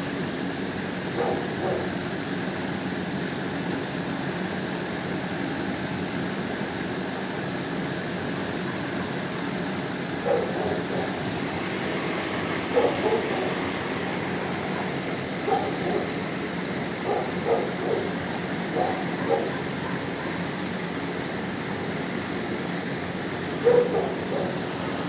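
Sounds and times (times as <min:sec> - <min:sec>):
ventilation hum: 0:00.0 - 0:25.0
dog bark: 0:01.2 - 0:01.9, 0:10.2 - 0:11.2, 0:12.7 - 0:13.5, 0:15.4 - 0:16.2, 0:17.0 - 0:18.1, 0:18.7 - 0:20.4, 0:23.6 - 0:24.6.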